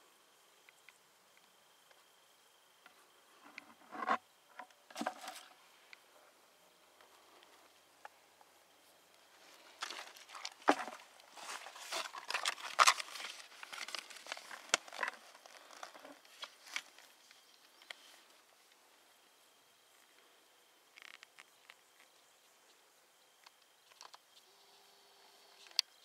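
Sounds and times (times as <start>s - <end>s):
paper rustling and crinkling: 9.5s - 17.4s.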